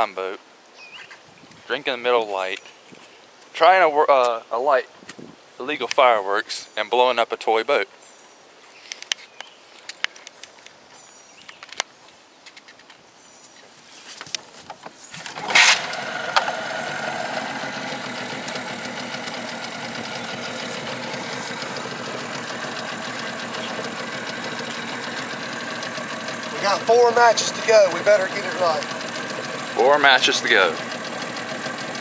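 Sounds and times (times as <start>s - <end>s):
outboard motor starting and idling: 15.2s - 32.0s.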